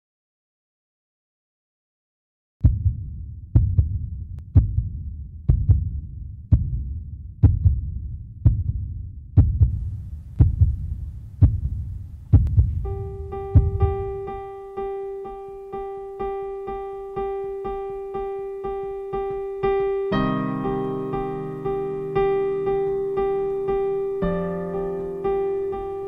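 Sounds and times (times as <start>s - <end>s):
heartbeat thumps: 2.6s - 14.5s
sustained piano note: 12.7s - 26.0s.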